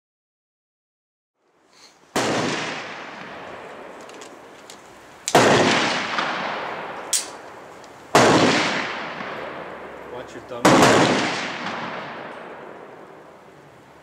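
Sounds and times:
gunshots with echoing tail: 2.1 - 4.0, 5.3 - 10.0, 10.6 - 13.2.

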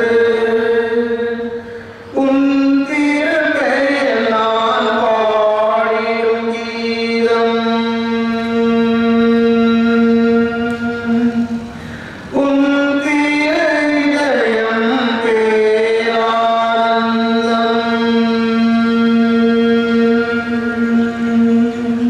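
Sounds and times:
liturgical chant holding a long note: 0.0 - 22.0.

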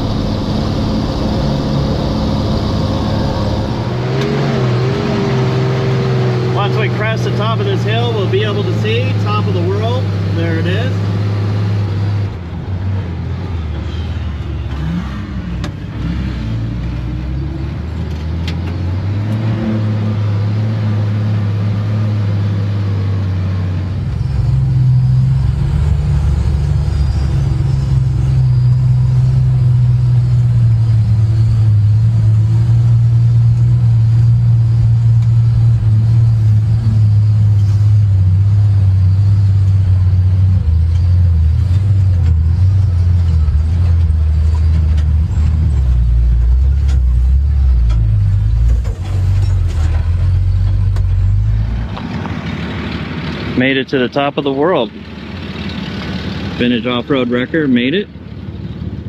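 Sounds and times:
truck engine running: 0.0 - 14.8, 20.1 - 59.0.

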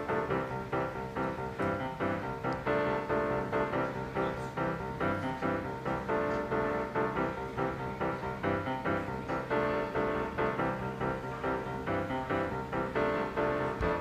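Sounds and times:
background music with even pitched notes: 0.0 - 14.0.

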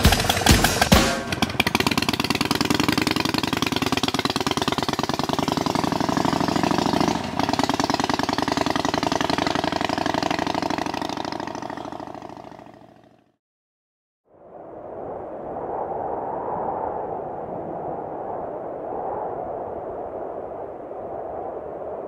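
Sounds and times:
motorcycle engine riding away: 0.0 - 13.4.

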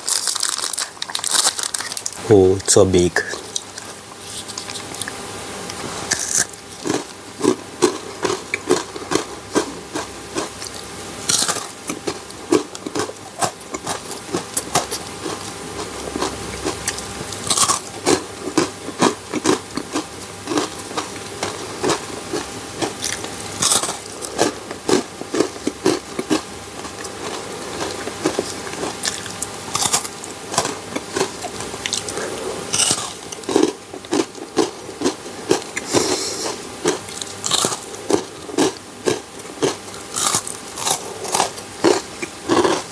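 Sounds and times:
chewing with crackling mouth sounds: 0.0 - 2.2, 3.2 - 42.9.

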